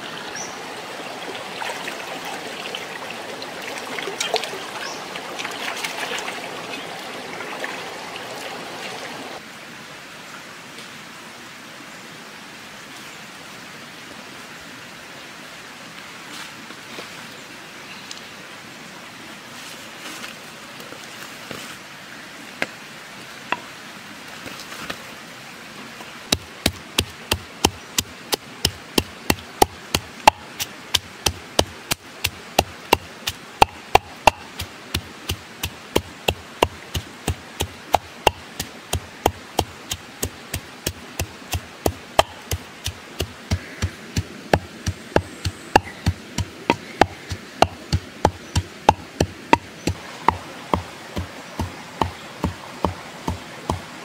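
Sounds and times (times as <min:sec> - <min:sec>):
stream rushing: 0:00.0 - 0:54.0
pestle pounding in wooden mortar: 0:26.3 - 0:53.9.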